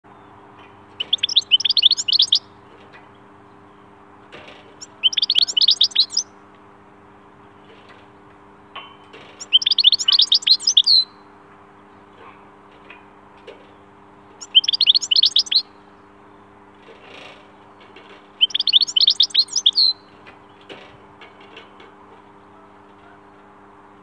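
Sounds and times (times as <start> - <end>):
goldfinch twittering: 1.0 - 2.5, 4.8 - 6.3, 9.4 - 11.2, 14.4 - 15.7, 18.4 - 20.1.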